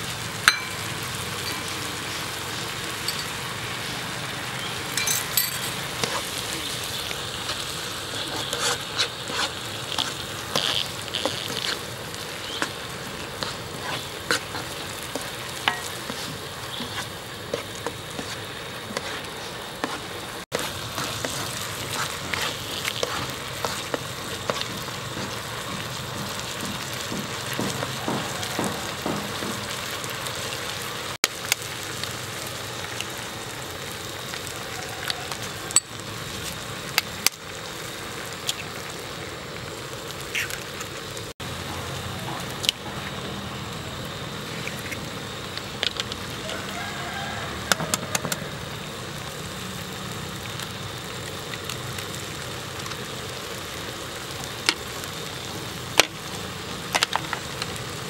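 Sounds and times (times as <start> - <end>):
food sizzling in a pan: 0.0 - 58.0
utensils scraping a pan: 5.0 - 6.4, 7.4 - 24.7.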